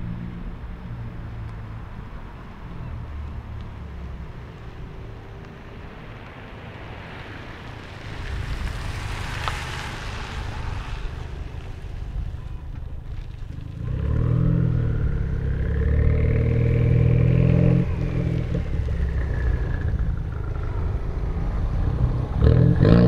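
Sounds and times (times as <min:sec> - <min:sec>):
car exhaust accelerating: 0:03.0 - 0:23.0.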